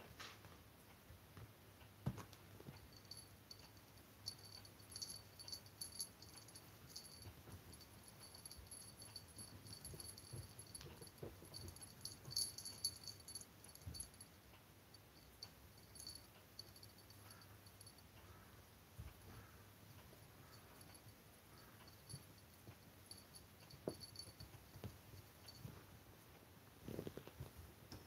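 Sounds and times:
small bell jingling: 2.7s - 18.1s, 20.4s - 25.8s.

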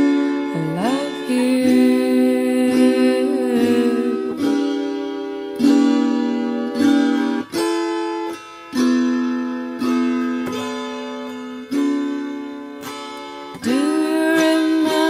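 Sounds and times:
guitar notes plucked: 0.0s - 15.0s.

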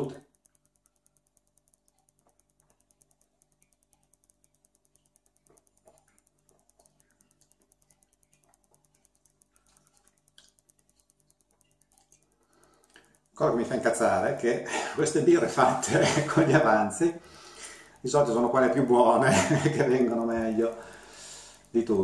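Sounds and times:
fast even ticking: 0.0s - 22.0s
soft small noises: 0.0s - 22.0s.

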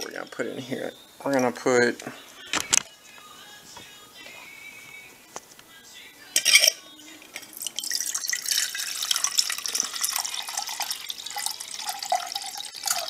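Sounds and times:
water pouring into a pot: 7.5s - 13.0s.

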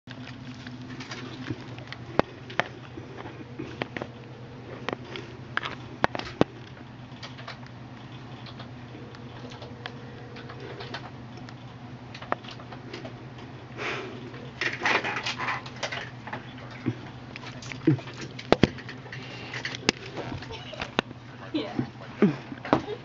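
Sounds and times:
low room hum: 0.1s - 23.0s
computer keyboard typing: 7.2s - 13.1s.

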